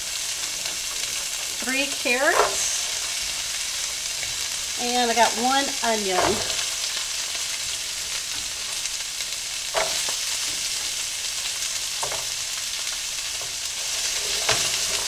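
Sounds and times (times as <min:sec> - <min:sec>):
vegetables sizzling in oil: 0:00.0 - 0:15.0
wooden spatula knocking pan: 0:06.2 - 0:06.9, 0:09.7 - 0:10.2.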